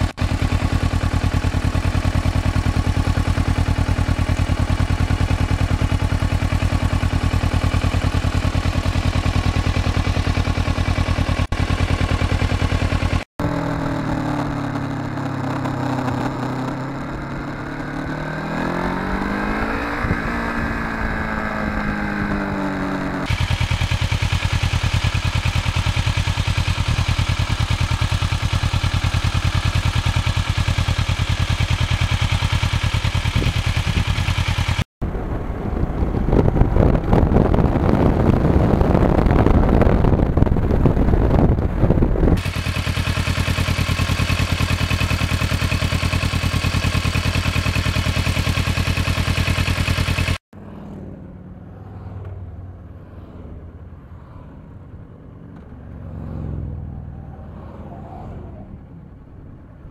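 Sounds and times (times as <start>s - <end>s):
motorcycle engine running: 0.0s - 53.4s
passing motorcycles: 0.0s - 59.9s
wind noise: 35.0s - 42.5s.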